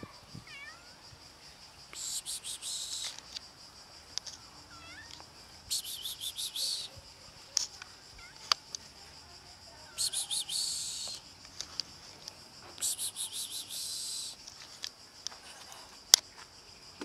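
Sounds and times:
cat meowing: 0:00.4 - 0:01.0, 0:04.7 - 0:05.2, 0:08.2 - 0:08.6
high-pitched insect buzzing: 0:02.0 - 0:03.4, 0:04.3 - 0:09.1, 0:09.7 - 0:11.6, 0:12.8 - 0:14.4.

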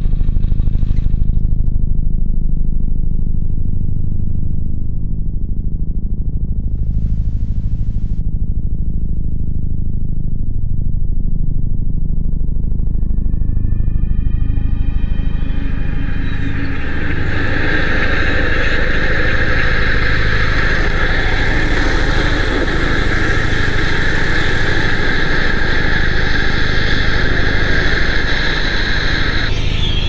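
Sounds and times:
fast-pulsing synthesizer drone: 0:11.6 - 0:30.0
sustained high synth tone: 0:13.2 - 0:30.0.

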